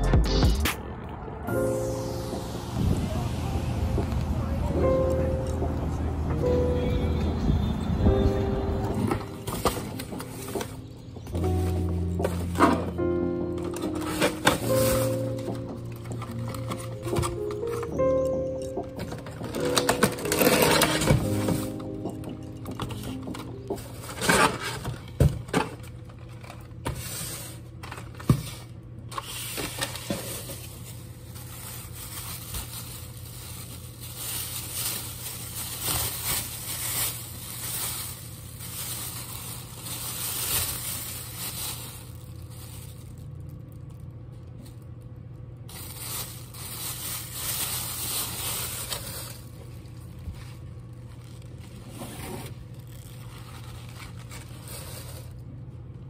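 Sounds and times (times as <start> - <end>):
low hum: 0.0 - 13.8
plastic bags crinkling: 9.1 - 55.5.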